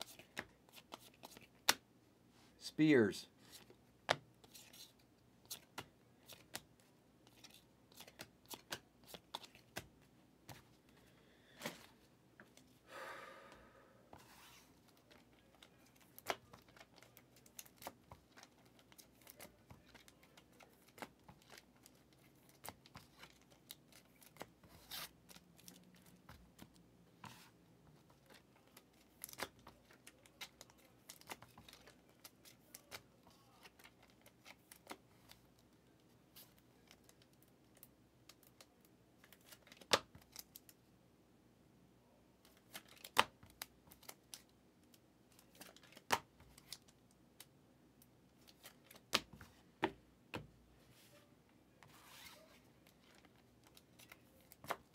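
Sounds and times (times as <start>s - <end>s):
cards clicking and tapping: 0.0s - 1.8s, 5.5s - 10.7s, 15.0s - 24.5s, 48.5s - 50.5s.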